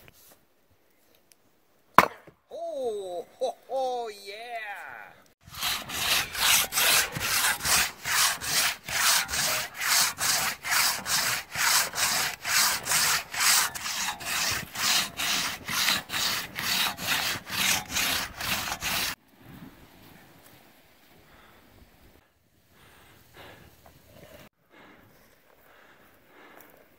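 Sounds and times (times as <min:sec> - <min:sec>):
crosscut saw rasping through log: 0:05.4 - 0:19.2.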